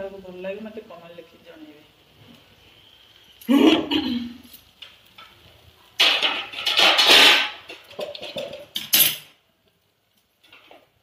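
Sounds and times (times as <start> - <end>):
utensils scraping and clattering: 6.0 - 9.4.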